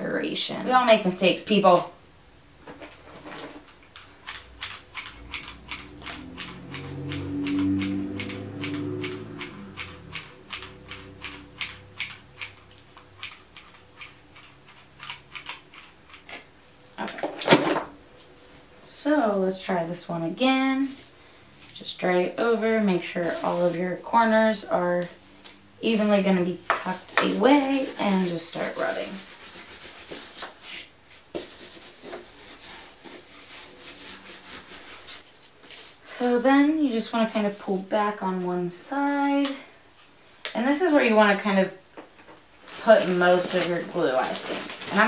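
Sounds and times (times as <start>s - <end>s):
cloth brushing on foam: 23.0s - 24.1s, 26.8s - 36.0s.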